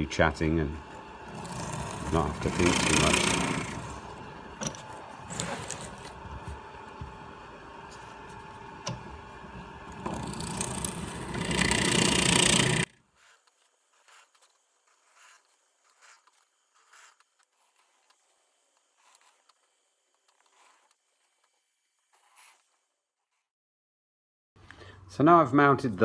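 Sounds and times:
drill press cutting wood: 0:00.4 - 0:13.0.

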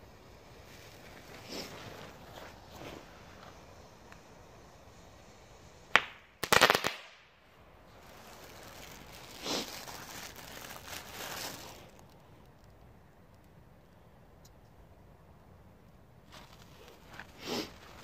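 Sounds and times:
firework crackling and hissing: 0:00.0 - 0:12.8, 0:16.2 - 0:18.0
firework rapid cracks: 0:05.9 - 0:07.4.

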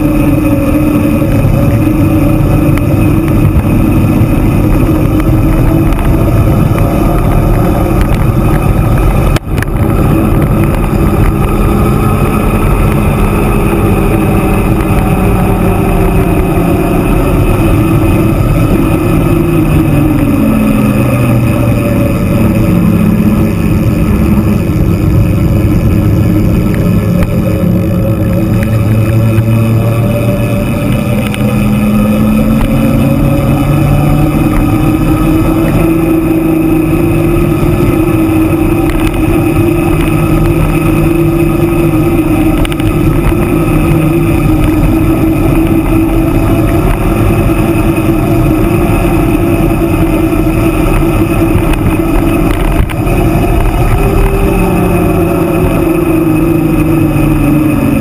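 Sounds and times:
tyre noise on road: 0:00.0 - 0:58.0
wind buffeting microphone: 0:00.0 - 0:58.0.

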